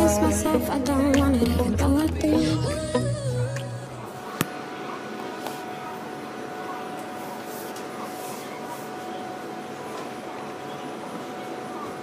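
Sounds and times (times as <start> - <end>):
metro station ambience hiss: 3.2 - 12.0.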